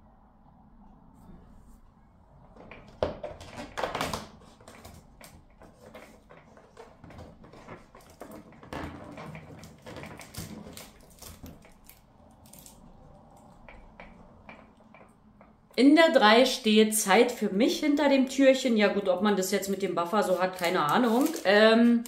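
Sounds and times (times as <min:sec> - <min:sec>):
cardboard crackling and tearing: 0:09.5 - 0:12.8, 0:20.3 - 0:21.6.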